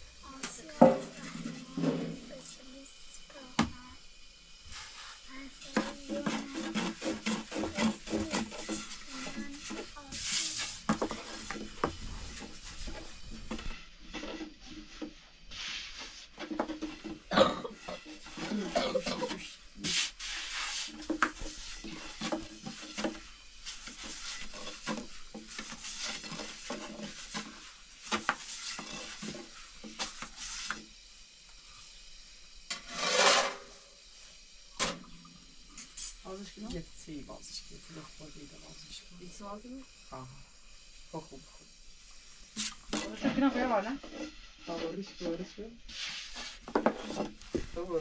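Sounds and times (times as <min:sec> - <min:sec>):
rolling pin rolling dough: 0:00.6 - 0:02.2, 0:04.7 - 0:30.8, 0:42.6 - 0:48.0.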